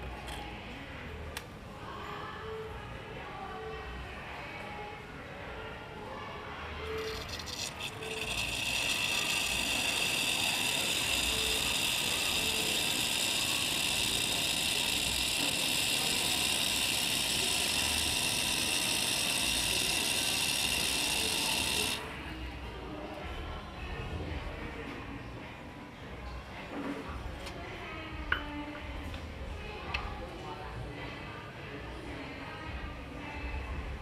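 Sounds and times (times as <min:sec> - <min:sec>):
espresso steam wand hissing: 0:06.9 - 0:22.0.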